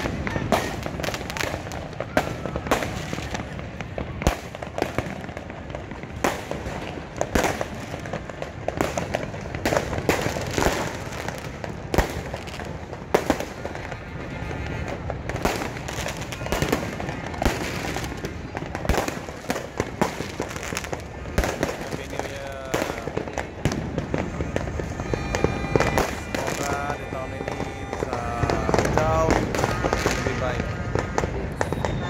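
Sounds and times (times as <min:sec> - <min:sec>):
fireworks banging: 0:00.0 - 0:32.0
steady background din: 0:00.0 - 0:32.0.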